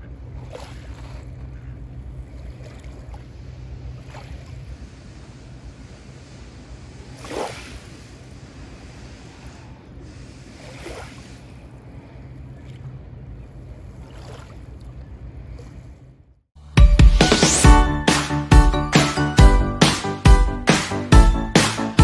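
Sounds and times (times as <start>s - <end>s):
small waves lapping on pebbles: 7.1s - 8.1s, 10.1s - 11.7s.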